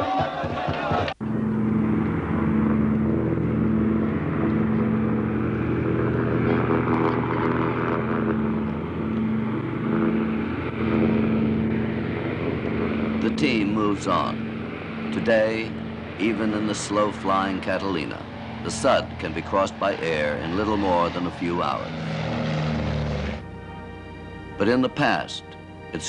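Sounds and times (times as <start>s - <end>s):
chanting: 0.0s - 1.2s
piston engines droning: 0.0s - 26.0s.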